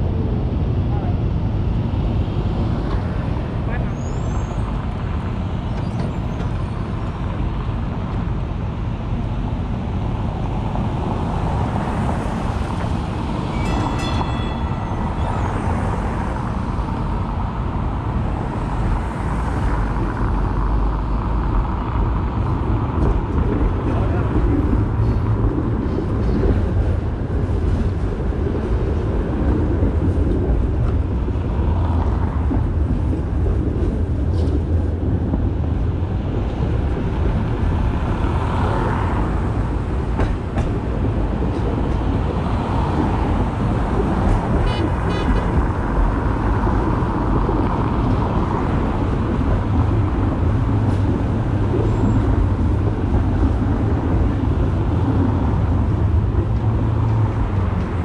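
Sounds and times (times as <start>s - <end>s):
streetcar rumbling on track: 0.0s - 58.0s
high ringing tone: 13.4s - 16.3s.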